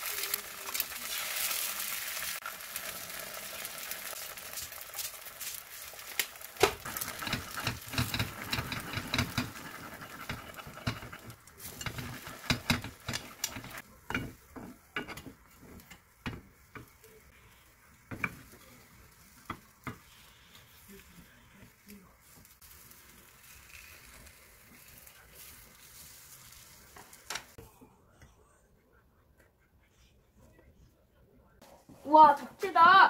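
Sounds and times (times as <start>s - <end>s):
eggs sizzling in a pan: 0.0s - 27.6s
chopsticks tapping on a pan: 6.6s - 17.0s, 18.1s - 18.6s, 19.4s - 20.1s
spatula scraping a pan: 6.8s - 18.6s.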